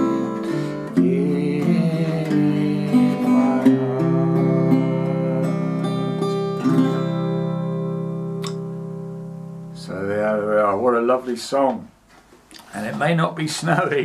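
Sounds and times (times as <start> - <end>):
acoustic guitar strumming: 0.0 - 10.4.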